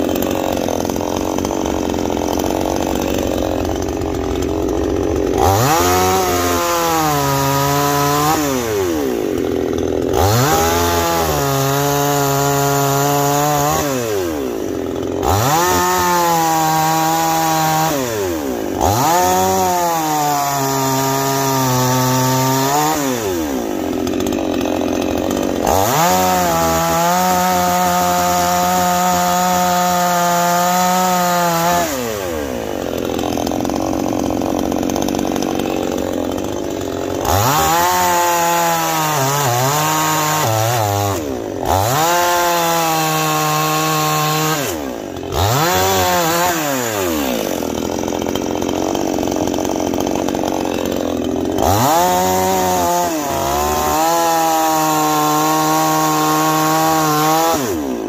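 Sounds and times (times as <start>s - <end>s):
chainsaw revving and idling: 0.0s - 58.0s.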